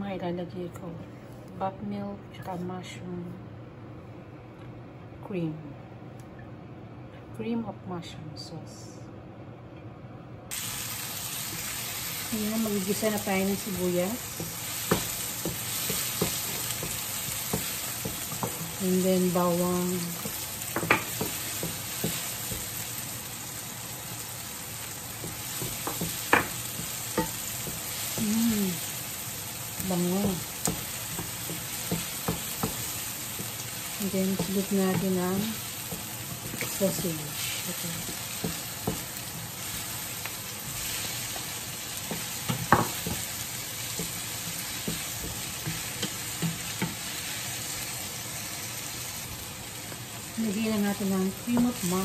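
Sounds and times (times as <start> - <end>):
onion and garlic sizzling: 10.5 - 52.0
wooden spatula knocking on pan: 14.4 - 18.7, 20.2 - 22.7, 25.2 - 28.3, 30.2 - 33.5, 34.3 - 35.2, 38.0 - 39.1, 42.1 - 43.3.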